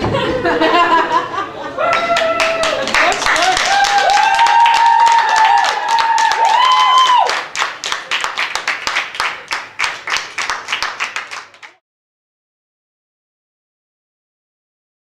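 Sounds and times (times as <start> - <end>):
people clapping: 1.8 - 11.8.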